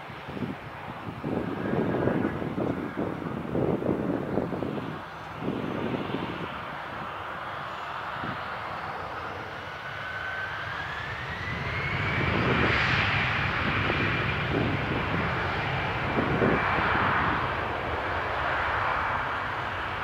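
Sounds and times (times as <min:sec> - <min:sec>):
jet engines spooling up: 0:04.2 - 0:20.0.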